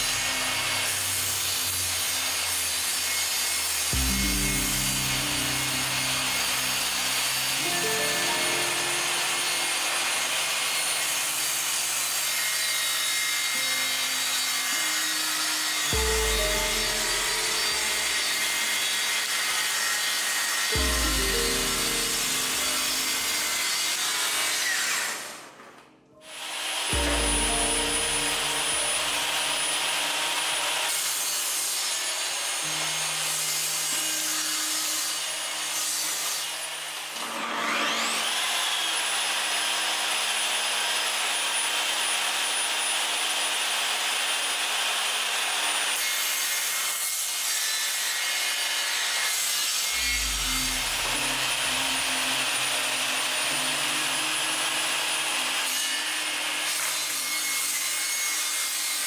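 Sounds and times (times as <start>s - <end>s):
high blade whine: 0.0s - 25.4s, 26.3s - 39.2s, 49.8s - 57.8s
table saw ripping a board: 0.0s - 59.0s.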